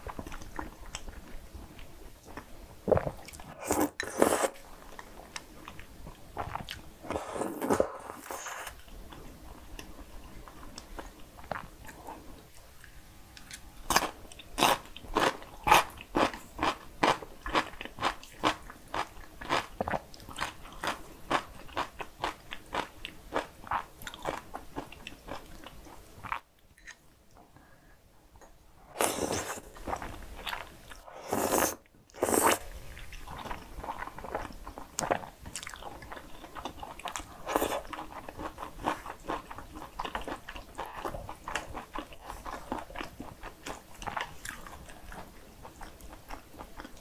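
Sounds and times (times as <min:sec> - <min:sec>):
noodles slurped: 0:31.1 - 0:32.6.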